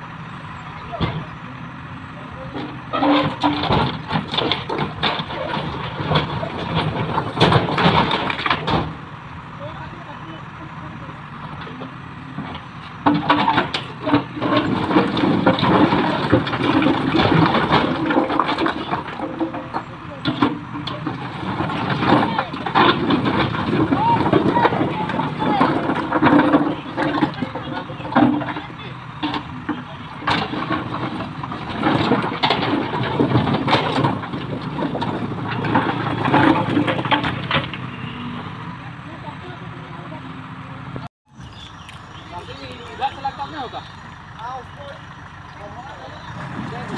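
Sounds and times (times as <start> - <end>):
diesel engine under load: 0.0 - 46.9
rocks clattering: 2.6 - 9.0, 12.4 - 38.4.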